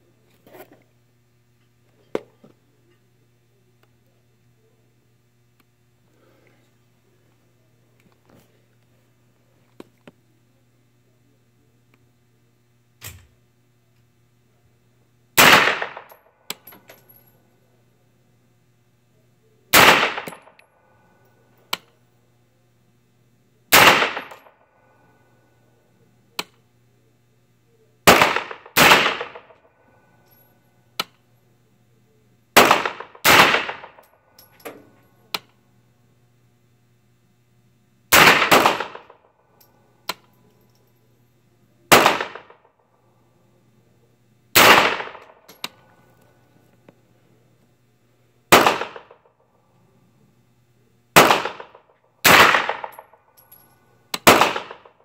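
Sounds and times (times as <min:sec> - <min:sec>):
steady low hum: 0:00.0 - 0:55.0
pistol shots in indoor range: 0:15.4 - 0:17.6, 0:19.7 - 0:22.0, 0:23.7 - 0:25.3, 0:28.0 - 0:30.0, 0:32.5 - 0:35.6, 0:38.1 - 0:40.3, 0:41.9 - 0:42.9, 0:44.5 - 0:46.0, 0:48.5 - 0:49.5, 0:51.1 - 0:55.0.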